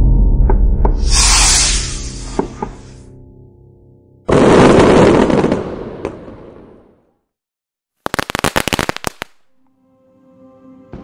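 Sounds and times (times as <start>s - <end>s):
firework crackling cracks: 8.0s - 9.6s.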